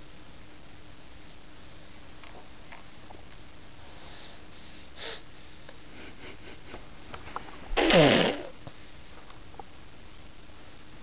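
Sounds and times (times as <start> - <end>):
toddler blowing a raspberry: 7.8 - 8.6.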